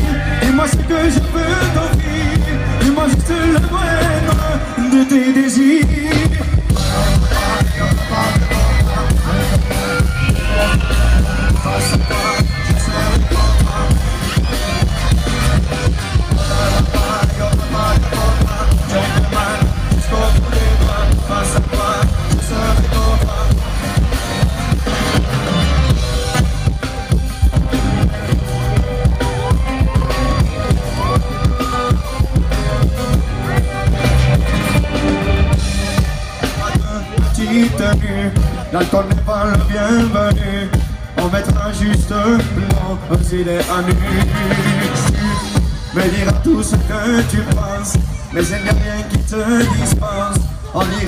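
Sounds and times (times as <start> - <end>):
drum kit beat: 0.0 - 51.0
live pop band playing: 0.0 - 51.0.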